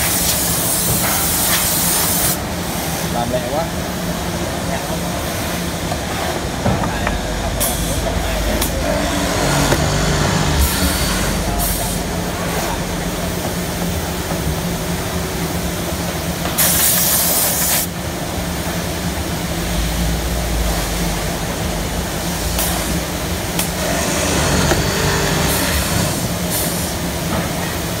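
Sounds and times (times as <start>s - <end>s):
drill motors humming: 7.0s - 12.2s, 23.6s - 26.4s
compressed air hiss: 16.6s - 17.9s.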